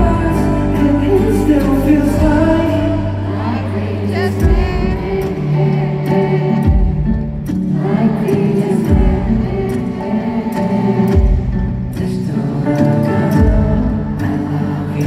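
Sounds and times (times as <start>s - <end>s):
deep bass beat: 0.0s - 3.5s, 4.2s - 5.4s, 8.9s - 9.8s, 11.1s - 12.2s, 13.3s - 14.4s
man singing pop ballad: 0.0s - 15.0s
sustained backing chords: 0.0s - 15.0s.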